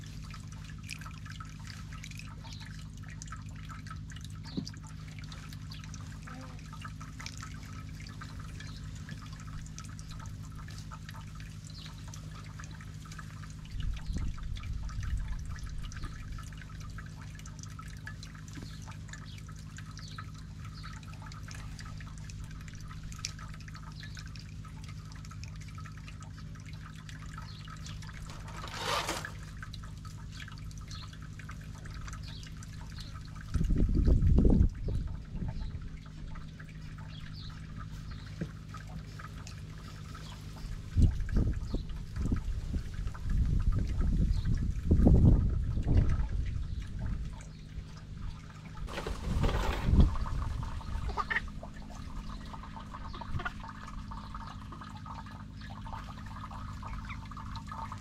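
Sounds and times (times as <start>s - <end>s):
dull rumble: 0.0s - 58.0s
steady low hum: 0.0s - 58.0s.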